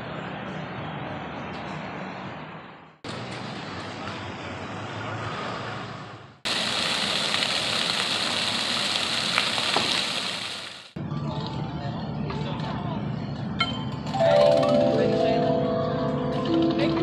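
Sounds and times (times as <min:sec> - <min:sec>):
outdoor background noise: 0:00.0 - 0:17.0
fountain water jets spraying: 0:06.5 - 0:11.0
small water splashes: 0:06.5 - 0:11.0.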